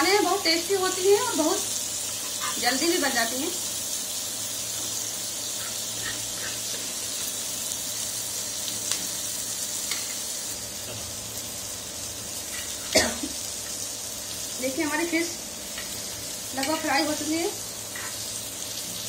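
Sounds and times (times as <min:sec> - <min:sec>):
fish sizzling in oil: 0:00.0 - 0:19.0
spatula scraping pan: 0:02.2 - 0:02.8, 0:05.4 - 0:07.4, 0:17.9 - 0:18.2.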